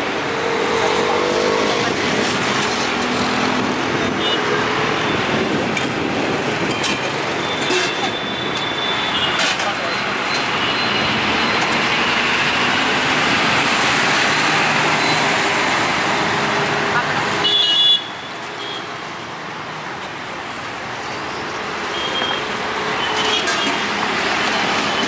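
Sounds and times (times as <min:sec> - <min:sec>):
road traffic passing: 0:00.0 - 0:25.0
car horn toot: 0:17.4 - 0:18.8.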